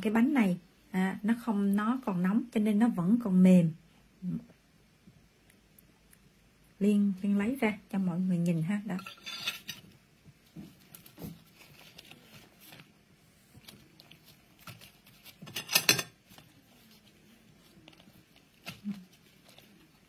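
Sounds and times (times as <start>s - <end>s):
leaves crinkling and rustling: 10.4s - 20.0s
sharp leaf crackle: 10.8s - 12.9s, 13.6s - 15.5s, 16.2s - 20.0s.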